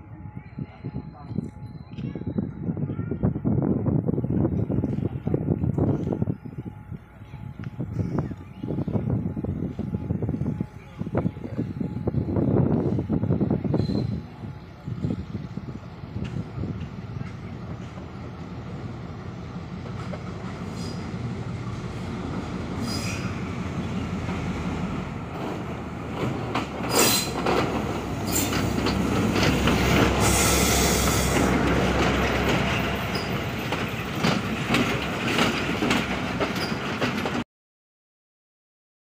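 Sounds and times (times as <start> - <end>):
diesel locomotive engine rumble: 0.0 - 37.4
train wheels clicking over rail joints: 16.1 - 37.4.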